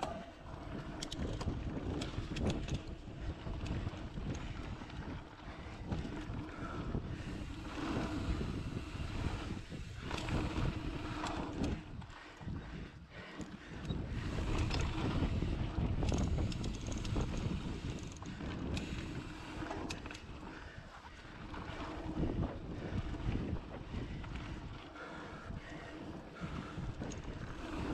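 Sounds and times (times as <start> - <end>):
bike clicks and rattles: 0.0 - 27.9
wind rushing over microphone: 0.0 - 27.9
tyres rolling on dirt: 21.2 - 23.5.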